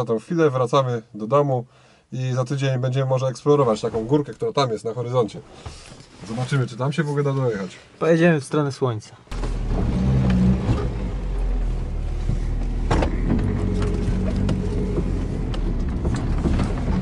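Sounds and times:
car engine running: 9.3 - 17.0
rattles and clicks from car body: 9.3 - 17.0.

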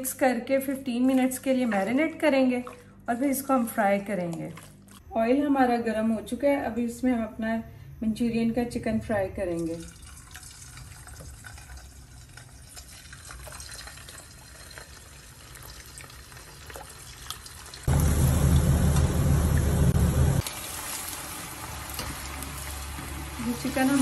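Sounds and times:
chicken sizzling in hot oil: 13.7 - 24.0.

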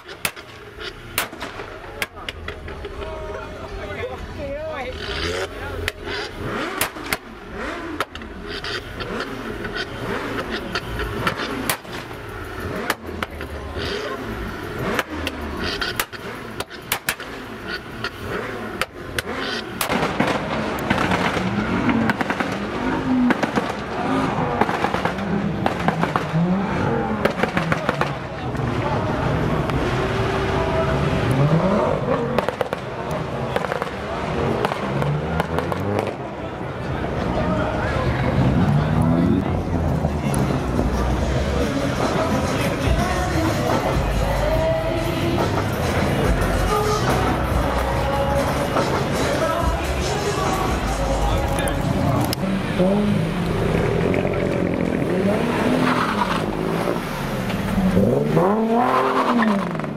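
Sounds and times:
exhaust crackles and pops: 0.0 - 3.3, 4.8 - 29.0, 32.1 - 36.6, 51.2 - 59.9
car engine revving: 0.0 - 59.9.

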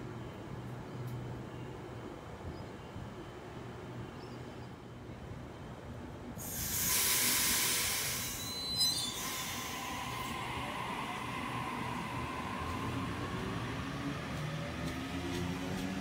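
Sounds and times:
loud air hiss: 6.4 - 13.5
train motor whine: 6.7 - 16.0.

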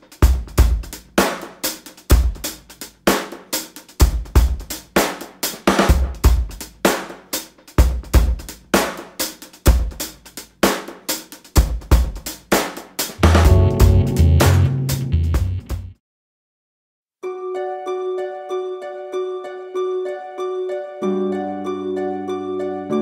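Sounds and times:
drum kit beat: 0.0 - 16.0.

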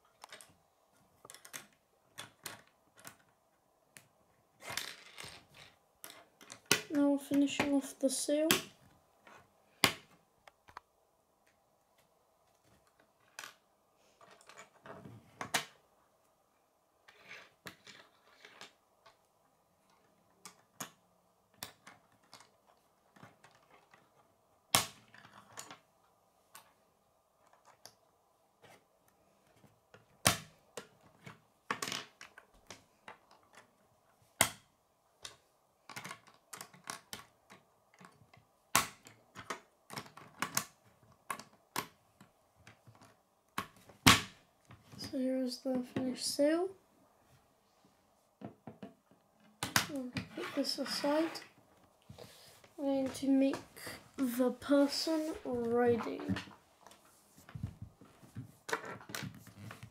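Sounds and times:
plastic pieces clicking together: 1.2 - 3.3, 35.2 - 42.0.

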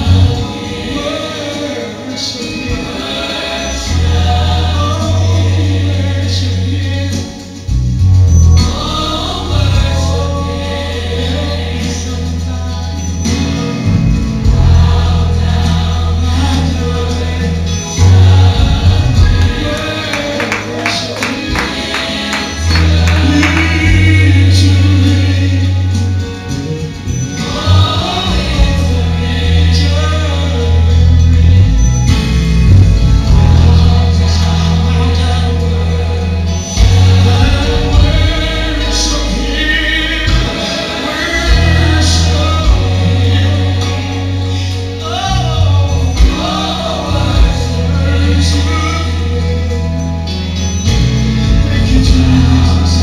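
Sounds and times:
sustained bass line: 0.0 - 1.8, 2.5 - 53.0
choir singing gospel music: 0.0 - 53.0
choir singing held note: 17.9 - 25.4, 36.7 - 44.7.

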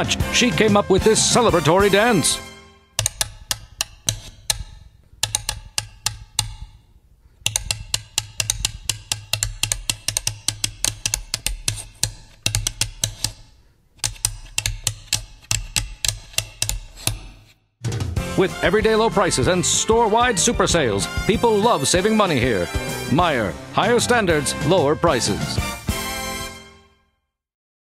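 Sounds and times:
backing track with bass line: 17.8 - 26.0.

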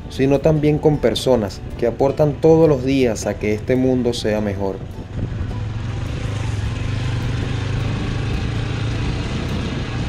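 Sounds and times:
road and wind noise: 0.0 - 10.0
motorcycle engine running: 4.0 - 10.0.

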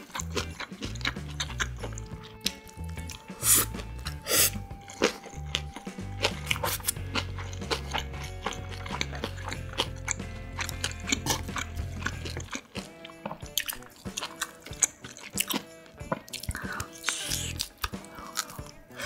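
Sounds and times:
wet chewing and biting: 0.0 - 19.0
sticky mouth clicks: 5.1 - 18.9.

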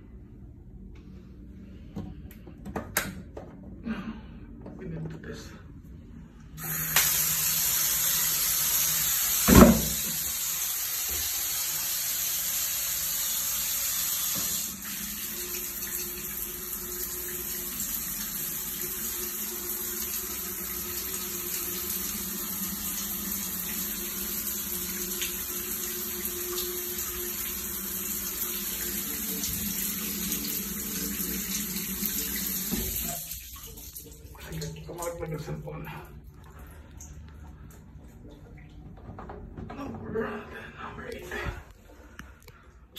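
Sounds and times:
shower spraying onto tile: 6.6 - 34.0.

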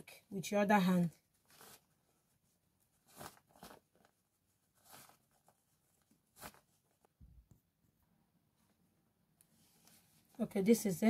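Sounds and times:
fabric rustling and swishing: 1.4 - 7.1.

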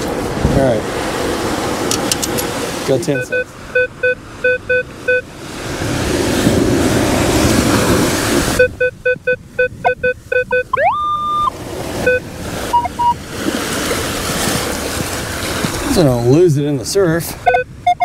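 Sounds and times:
surf wash: 0.0 - 18.0
metal detector beeps: 3.1 - 5.3, 8.6 - 13.2, 17.4 - 18.0
metal detector rising tone: 8.6 - 13.2.

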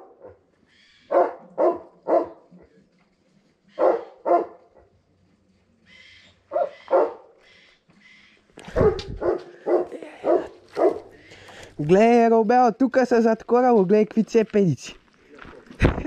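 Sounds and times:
dog barking: 0.0 - 0.4, 1.1 - 2.6, 3.8 - 4.9, 6.5 - 7.4, 8.7 - 11.1.

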